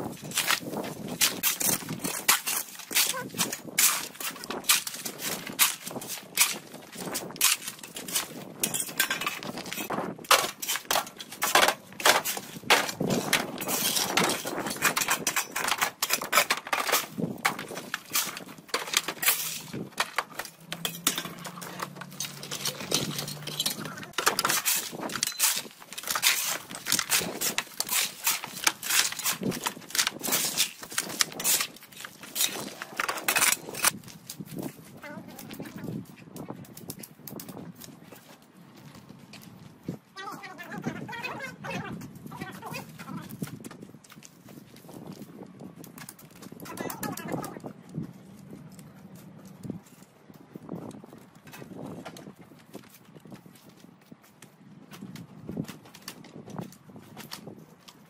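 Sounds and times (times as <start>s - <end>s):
rakes scraping dirt: 0.0s - 36.0s
bricks clattering into metal wheelbarrow: 7.3s - 34.0s.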